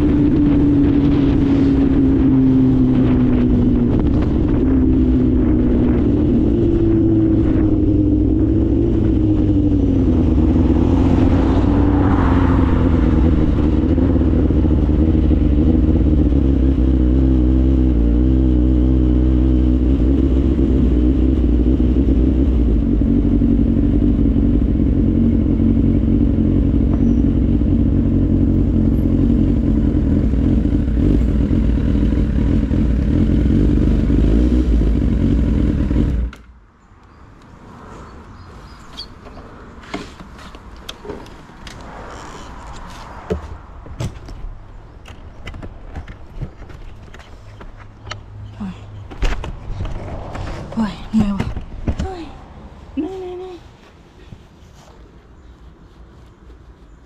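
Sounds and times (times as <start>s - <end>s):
motorcycle engine running: 0.0s - 36.4s.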